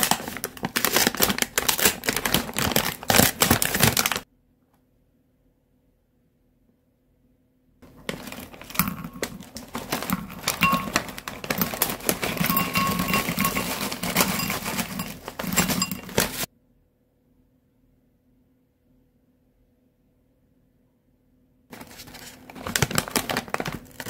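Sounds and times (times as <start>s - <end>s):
snack bag crinkling: 0.0s - 4.2s, 7.8s - 16.5s, 21.7s - 24.0s
snacks tapping against glass bowl: 8.2s - 16.5s.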